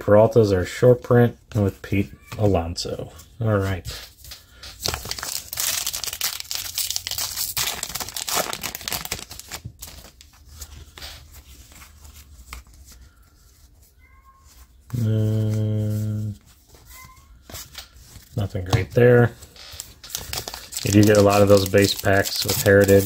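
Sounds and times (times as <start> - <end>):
wrapper crinkling and tearing: 4.8 - 10.7, 19.4 - 23.0
cards clicking and sliding: 19.4 - 23.0.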